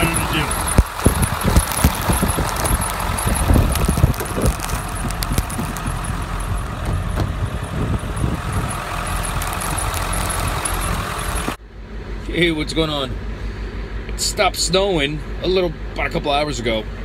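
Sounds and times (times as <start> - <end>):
wind buffeting microphone: 0.0 - 11.6
truck engine idling: 0.0 - 17.0.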